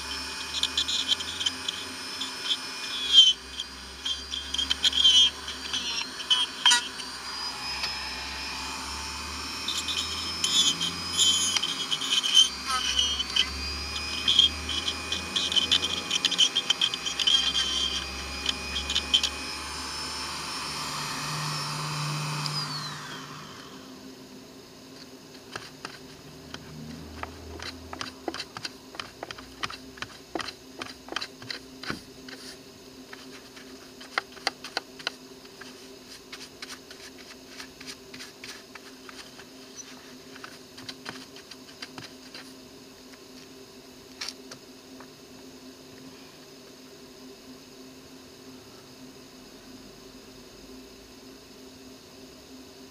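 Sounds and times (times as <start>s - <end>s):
rotary tool grinding wood: 0.0s - 23.9s, 25.3s - 42.6s.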